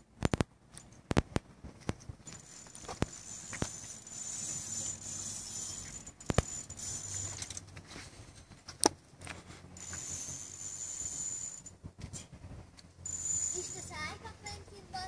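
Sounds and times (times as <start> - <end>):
fishing reel clicks and rattles: 2.3 - 7.7, 9.8 - 11.7
sharp reel clicks: 2.3 - 7.7.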